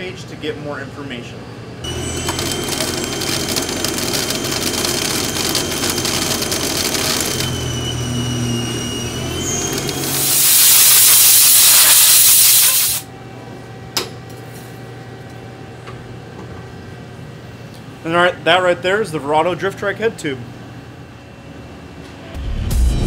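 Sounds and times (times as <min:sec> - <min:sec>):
lathe spindle hum: 0:01.8 - 0:10.2
high-pitched cutting whine: 0:01.8 - 0:13.1
coolant spray hissing: 0:09.8 - 0:13.1.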